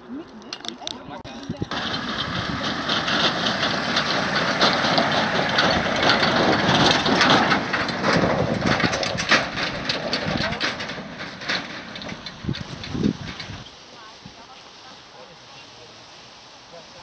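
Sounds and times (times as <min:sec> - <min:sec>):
tyres crunching over stubble: 0:00.1 - 0:16.0
engine running low: 0:01.6 - 0:13.8.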